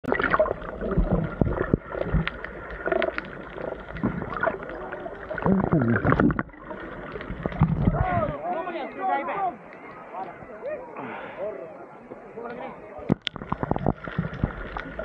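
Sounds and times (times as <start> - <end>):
bubbles gurgling underwater: 0.0 - 8.4, 13.1 - 15.0
water sloshing: 0.0 - 8.6.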